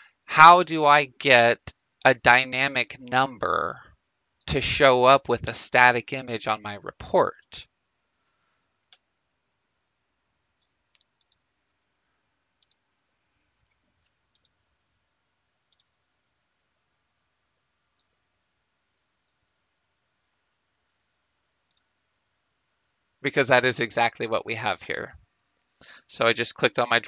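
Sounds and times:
faint computer mouse clicks: 0:10.4 - 0:16.2, 0:18.0 - 0:18.2, 0:18.9 - 0:20.1, 0:20.9 - 0:21.9.

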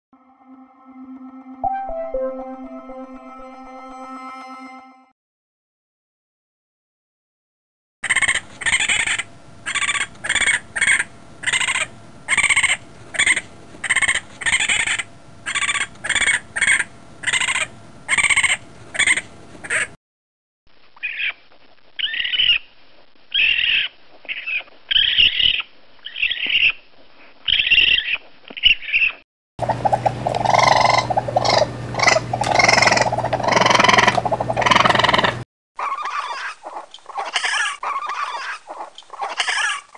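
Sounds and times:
raccoon screaming: 0:08.1 - 0:19.8, 0:23.3 - 0:26.8, 0:30.4 - 0:39.9.

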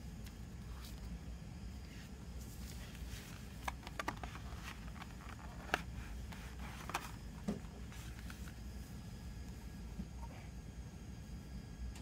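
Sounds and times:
steady low hum: 0:00.0 - 0:12.0
paper booklet rustling: 0:02.4 - 0:08.6
cd case clicks and taps: 0:03.6 - 0:05.9.

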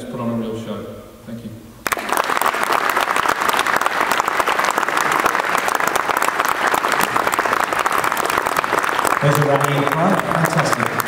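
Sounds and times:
audience applause: 0:01.8 - 0:11.0.

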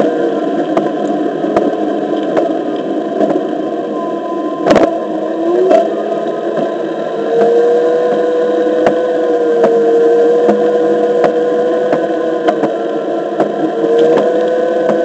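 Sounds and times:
electric motor whine: 0:03.7 - 0:15.0.

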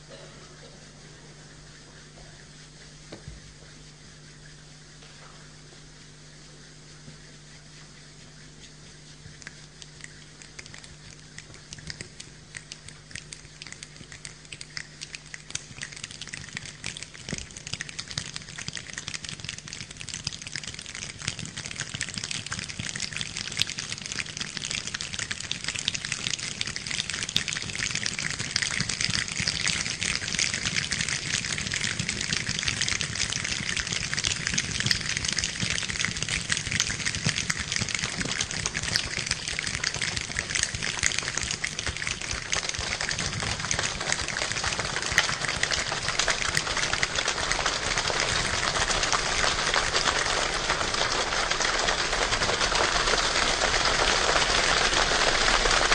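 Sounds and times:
hands rubbing and clicking like rain: 0:02.0 - 0:55.9.

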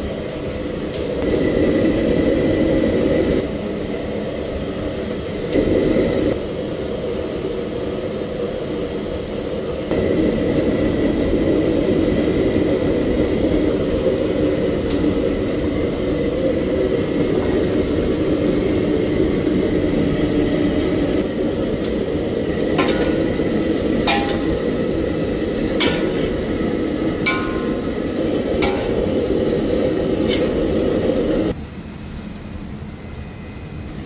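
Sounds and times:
gas burner roar: 0:00.0 - 0:34.0
food stir-frying in a wok: 0:10.0 - 0:31.5
metal spatula scraping wok: 0:22.8 - 0:23.3, 0:25.8 - 0:26.4, 0:30.2 - 0:30.7.

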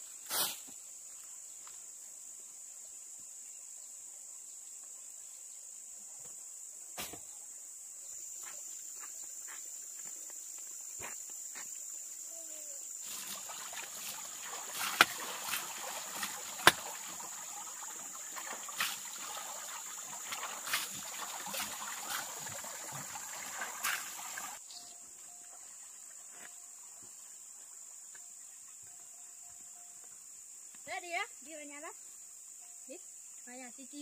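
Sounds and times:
water splashing and trickling: 0:11.8 - 0:24.6.

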